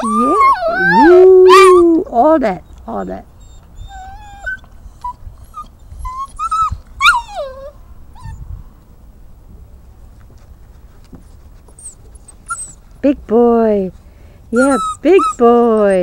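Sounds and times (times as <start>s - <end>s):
puppy whimpering: 0.0s - 8.4s, 11.8s - 12.8s, 14.5s - 16.0s.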